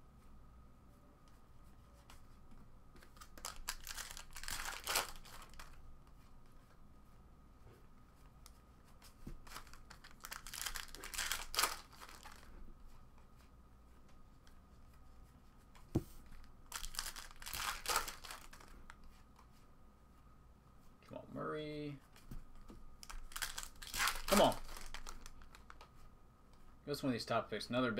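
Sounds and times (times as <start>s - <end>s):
trading cards rustling: 2.9s - 5.8s, 9.0s - 12.5s, 16.2s - 19.6s, 22.1s - 26.0s.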